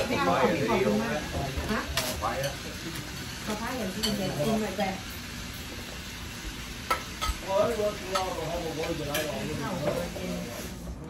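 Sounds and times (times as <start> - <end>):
dishes and cutlery clinking: 0.7 - 5.8, 6.8 - 10.2.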